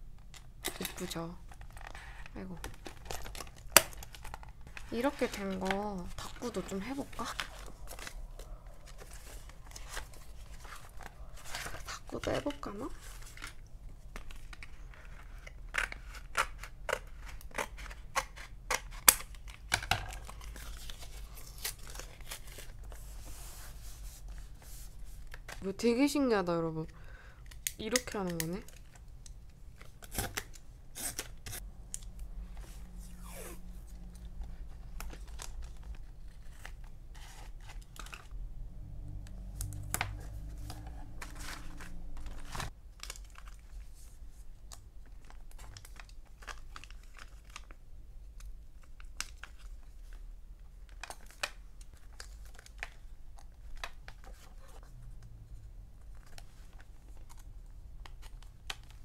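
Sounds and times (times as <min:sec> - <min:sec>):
paper rustling and tearing: 0:20.2 - 0:25.6, 0:39.8 - 0:44.1.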